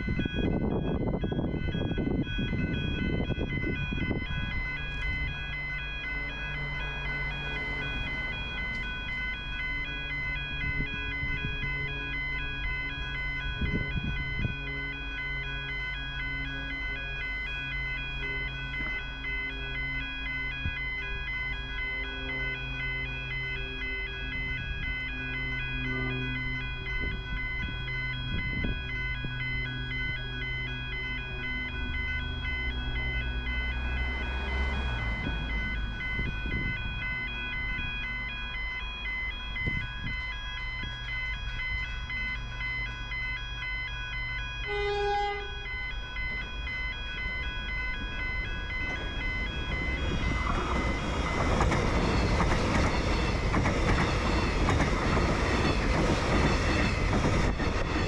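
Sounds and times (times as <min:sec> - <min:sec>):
two-tone level crossing alarm: 0:00.0 - 0:58.0.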